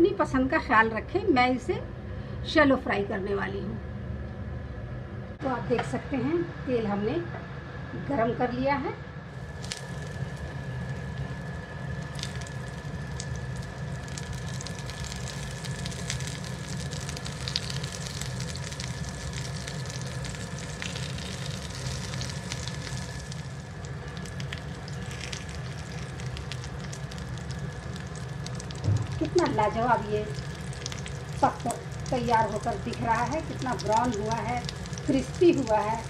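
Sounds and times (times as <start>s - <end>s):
steady low hum: 0.0s - 36.0s
oil sizzling with pops: 9.4s - 36.0s.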